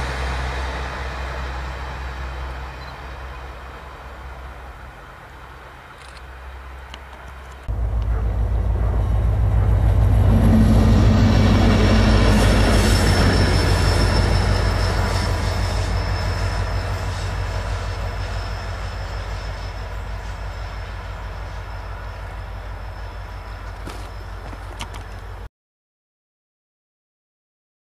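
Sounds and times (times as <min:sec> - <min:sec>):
diesel locomotive engine drone: 0:00.0 - 0:25.5
wheel squeal: 0:11.8 - 0:25.3.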